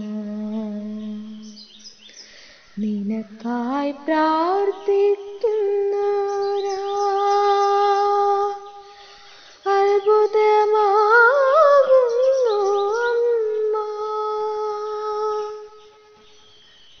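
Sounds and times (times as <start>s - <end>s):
woman humming: 0.0s - 1.6s.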